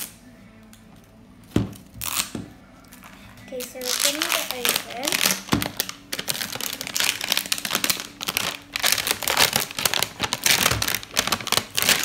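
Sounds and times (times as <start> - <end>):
wrapper crinkling: 2.9 - 12.0.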